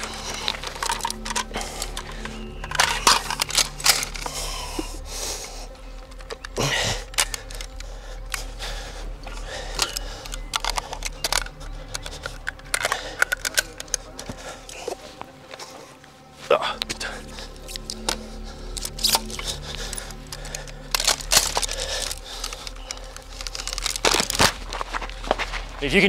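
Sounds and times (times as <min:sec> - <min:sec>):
metallic clicks of rifle handling: 0:00.0 - 0:16.0, 0:16.8 - 0:25.4.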